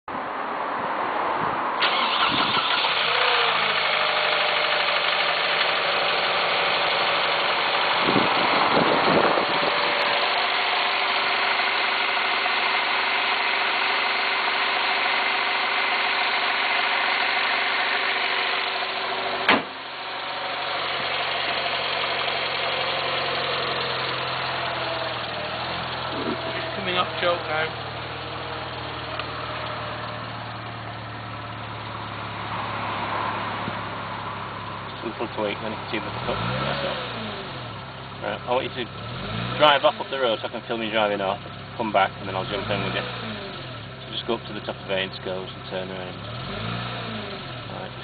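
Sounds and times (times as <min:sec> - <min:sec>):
car engine idling: 0:01.8 - 0:48.0
sharp knock: 0:19.5 - 0:19.8.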